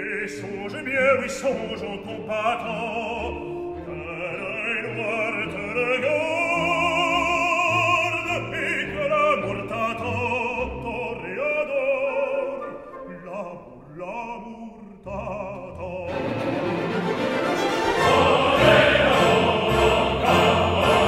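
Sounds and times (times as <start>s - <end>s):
operatic voice singing: 0.0s - 21.0s
instrumental accompaniment: 15.8s - 21.0s.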